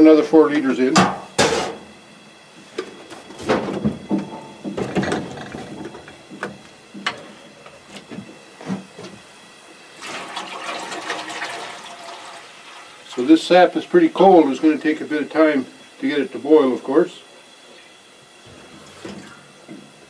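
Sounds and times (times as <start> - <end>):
jug knocking and bumping: 3.4 - 7.2
liquid pouring into metal pan: 10.0 - 13.2.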